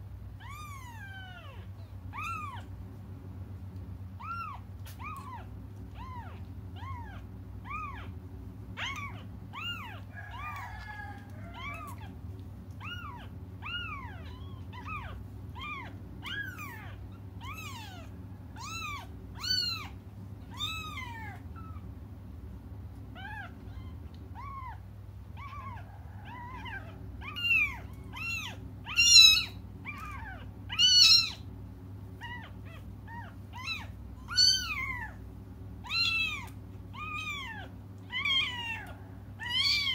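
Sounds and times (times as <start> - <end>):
kittens mewing: 0.4 - 2.9, 4.1 - 22.3, 23.0 - 39.9.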